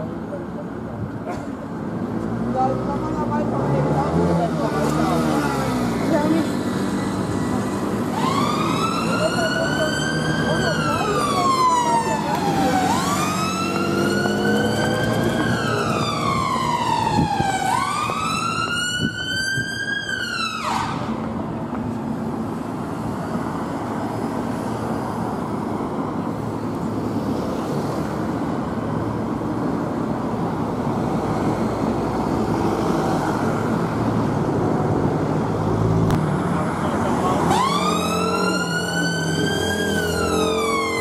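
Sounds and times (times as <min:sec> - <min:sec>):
city traffic noise: 0:00.0 - 0:41.0
ambulance siren wailing: 0:07.2 - 0:21.2, 0:37.3 - 0:41.0.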